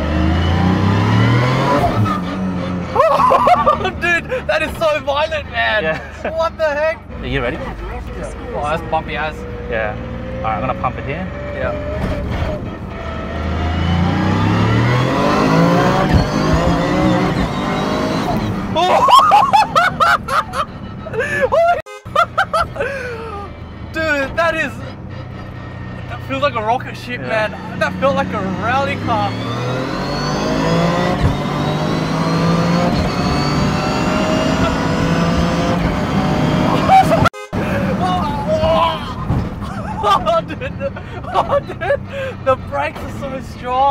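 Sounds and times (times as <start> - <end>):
car engine accelerating: 0.0 - 43.9
gear shift clunk: 31.1 - 31.5, 39.1 - 40.7.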